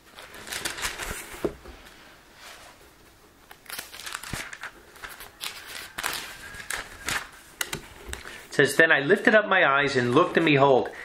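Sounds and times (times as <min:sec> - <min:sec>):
thin pages being turned: 0:00.0 - 0:02.6, 0:03.4 - 0:08.5.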